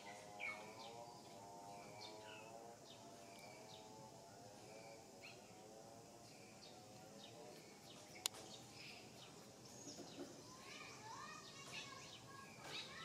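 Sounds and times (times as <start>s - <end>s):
low wavering drone: 0.0s - 9.8s
faint bird chirps: 0.0s - 13.0s.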